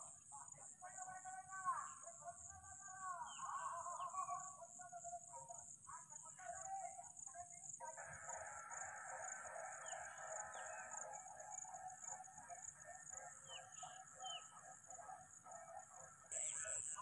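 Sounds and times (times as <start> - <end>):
small birds chirping: 12.8 - 15.4, 16.2 - 17.0.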